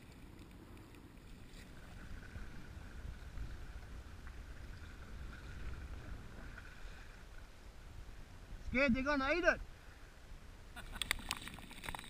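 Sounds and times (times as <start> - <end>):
water lapping against hull: 0.0 - 8.6
wind rumbling on microphone: 0.0 - 12.0.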